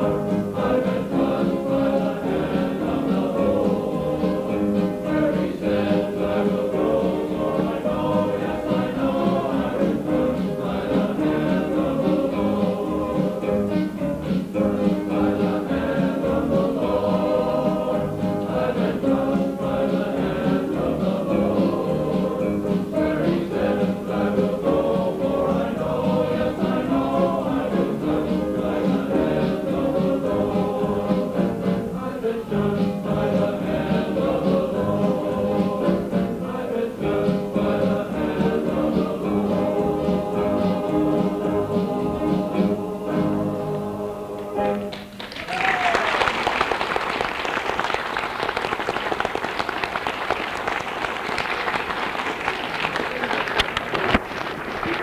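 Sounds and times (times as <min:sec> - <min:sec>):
men's chorus singing: 0:00.0 - 0:44.9
audience applauding: 0:44.6 - 0:55.0.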